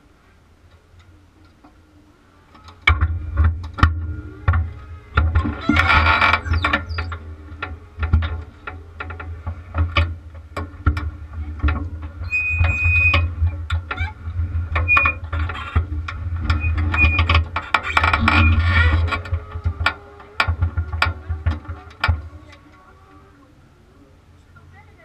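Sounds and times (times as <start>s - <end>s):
chassis knocking and rattling: 2.6s - 22.3s
low rumble: 2.8s - 23.4s
short squeaks: 5.4s - 7.2s, 12.2s - 14.2s, 14.8s - 15.8s, 16.5s - 19.2s.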